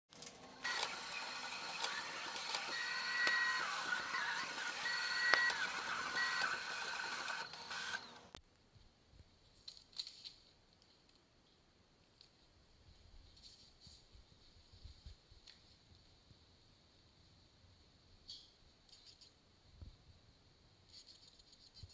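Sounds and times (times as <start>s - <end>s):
cutting plotter motors whining: 0.4s - 8.4s.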